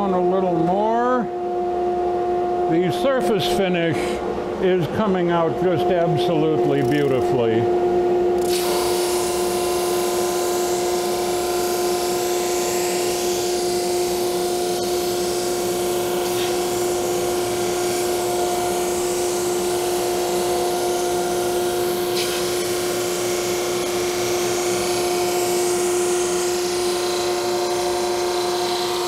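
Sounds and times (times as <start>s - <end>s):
drum sander humming and hissing: 0.0s - 29.0s.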